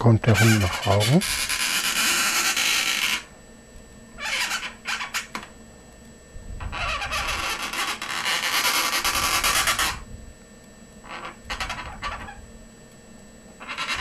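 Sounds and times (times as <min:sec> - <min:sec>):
marker rubbing on balloon: 0:00.3 - 0:03.3, 0:04.2 - 0:05.3, 0:06.8 - 0:10.0, 0:11.1 - 0:12.4, 0:13.6 - 0:14.0.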